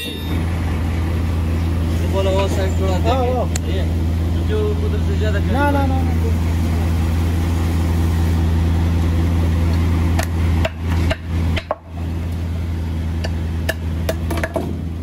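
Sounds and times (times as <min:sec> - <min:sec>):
low engine hum: 0:00.0 - 0:15.0
sharp knocks and clicks: 0:10.2 - 0:11.8, 0:13.2 - 0:14.8.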